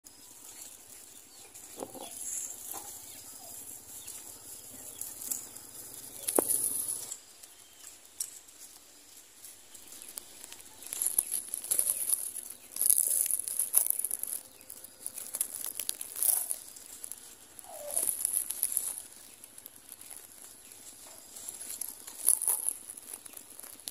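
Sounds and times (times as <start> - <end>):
dry grass nest rustling: 0.1 - 23.9.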